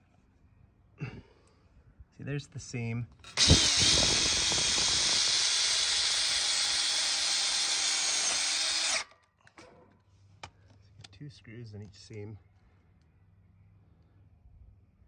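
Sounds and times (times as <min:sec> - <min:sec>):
power drill driving screw into steel: 0:03.2 - 0:09.2.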